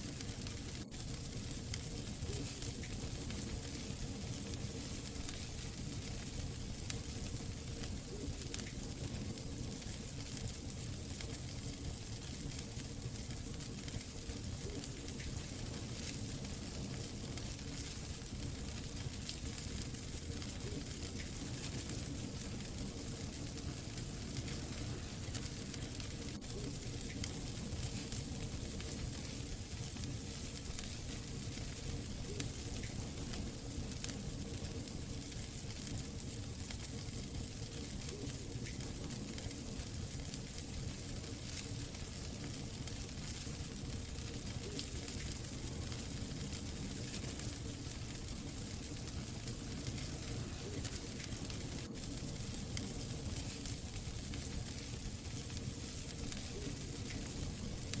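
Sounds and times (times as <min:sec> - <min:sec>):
wood fire crackling: 0:00.0 - 0:58.0
fire pops: 0:00.1 - 0:58.0.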